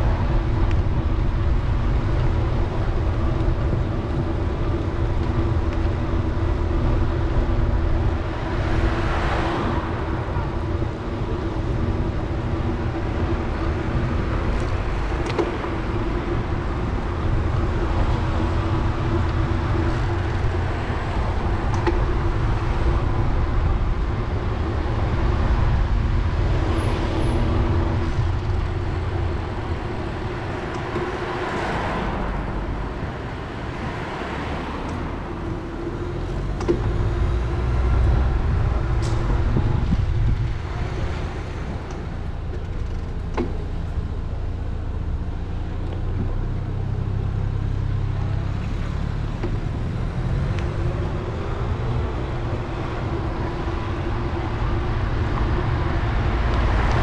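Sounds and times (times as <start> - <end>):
street traffic rumble: 0.0 - 57.0.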